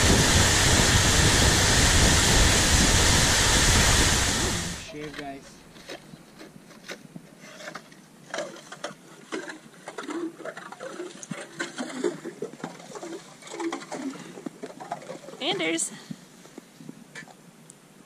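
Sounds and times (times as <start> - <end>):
ice auger crunching and scraping: 0.0 - 14.1.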